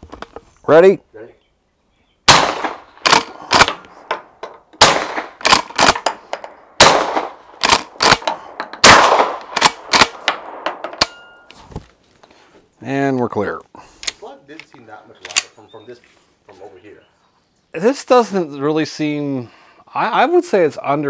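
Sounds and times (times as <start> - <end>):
suppressed shotgun shots: 2.3 - 4.2, 4.8 - 11.2.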